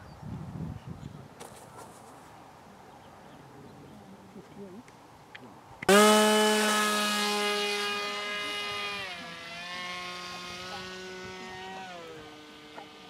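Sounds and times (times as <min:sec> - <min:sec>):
model plane motor whine: 0:05.9 - 0:13.0.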